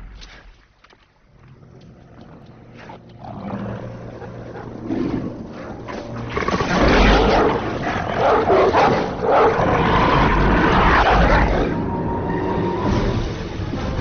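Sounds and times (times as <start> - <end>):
monster dogs snarling and growling: 1.6 - 11.8.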